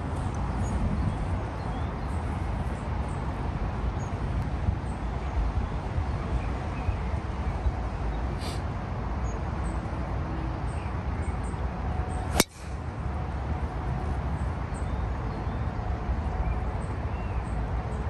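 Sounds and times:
golf club striking ball: 12.3s - 12.8s.

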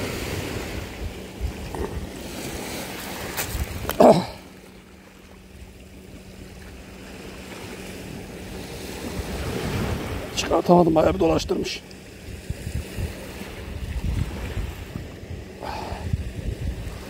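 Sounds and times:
wind on microphone: 0.0s - 4.0s, 8.0s - 10.4s, 11.0s - 17.0s
sea waves on shore: 0.0s - 17.0s.

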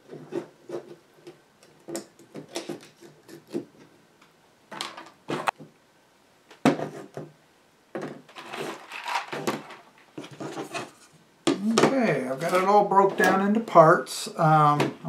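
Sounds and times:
parts knocking on table: 6.6s - 7.3s
sliding and clattering: 8.0s - 11.1s.

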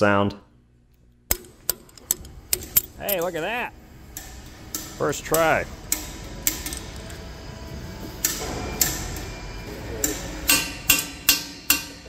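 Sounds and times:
hammer striking steel punch: 8.2s - 12.0s.

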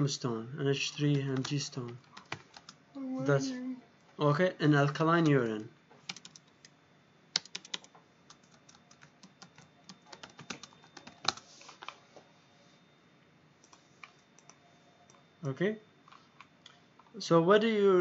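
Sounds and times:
typing on computer keyboard: 1.0s - 2.8s, 5.2s - 6.7s, 7.4s - 11.4s.

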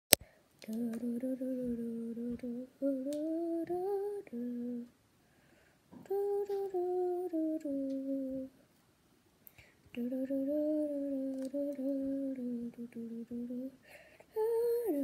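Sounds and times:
person humming: 0.6s - 4.9s, 6.0s - 8.5s, 10.0s - 15.0s.

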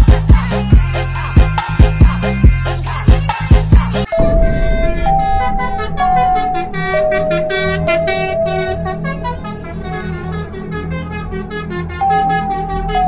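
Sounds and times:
musical bus horn melody: 6.4s - 13.0s.

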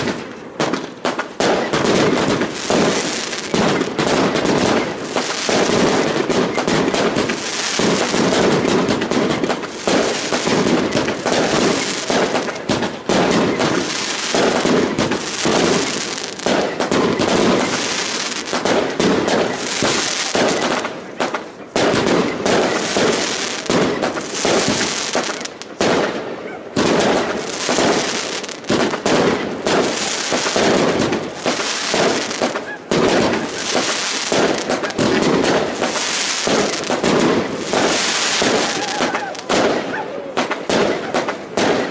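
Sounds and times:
fireworks bursting and crackling: 0.0s - 41.9s.

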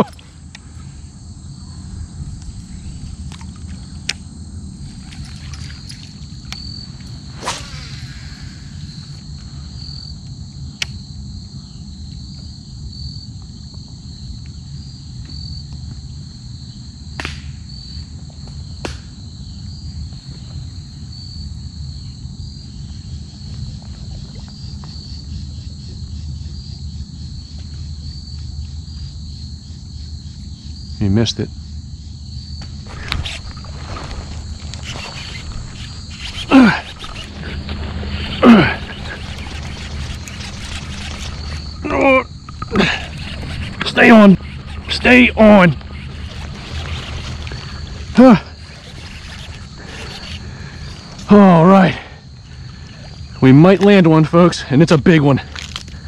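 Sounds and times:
insects chirping: 0.0s - 56.0s
sharp clicks: 34.5s - 51.3s.

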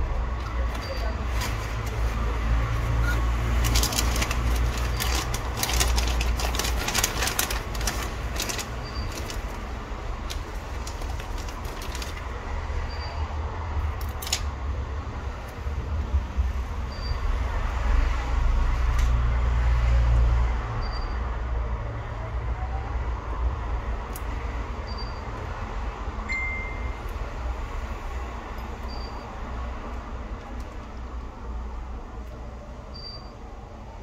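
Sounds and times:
plastic bag crinkling: 0.6s - 12.4s.

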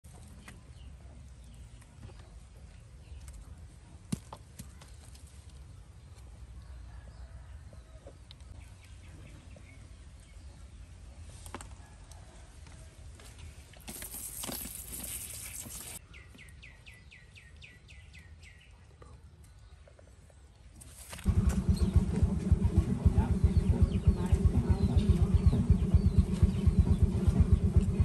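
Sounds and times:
low outdoor rumble: 21.2s - 28.0s.

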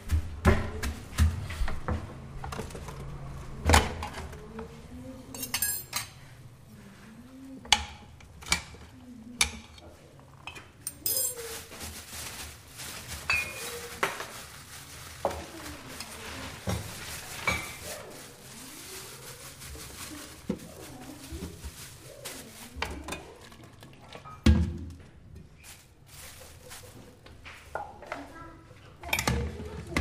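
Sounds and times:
dishes and cutlery clinking: 5.3s - 6.2s, 9.4s - 11.7s.

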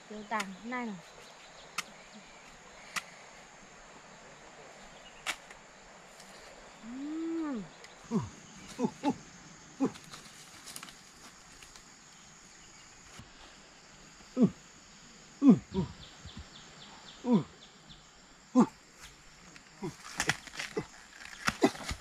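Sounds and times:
person calling: 6.8s - 9.2s, 15.4s - 16.1s, 17.2s - 17.6s, 18.5s - 18.8s.

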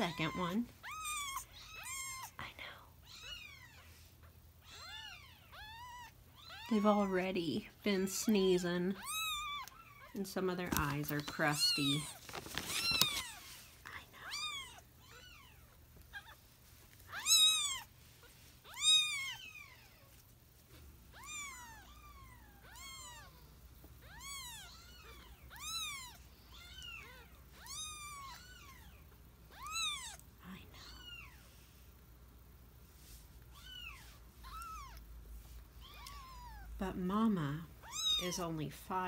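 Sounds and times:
handling rustle: 10.5s - 13.8s.

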